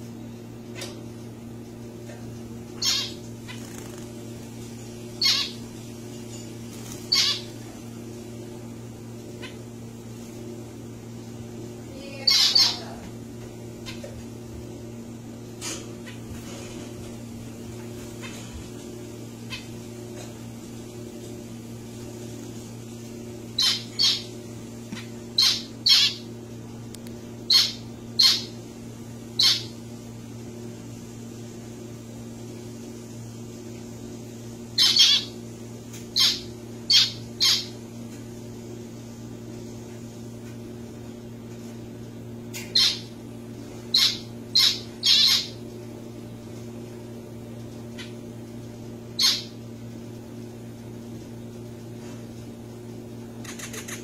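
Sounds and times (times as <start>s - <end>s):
steady low hum: 0.0s - 54.0s
finches calling: 2.8s - 3.8s, 5.2s - 5.6s, 7.1s - 7.6s, 12.1s - 12.9s, 23.6s - 24.4s, 25.4s - 26.2s, 27.5s - 28.6s, 29.4s - 29.7s, 34.8s - 35.4s, 36.1s - 37.8s, 42.7s - 43.1s, 43.9s - 45.6s, 49.2s - 49.5s.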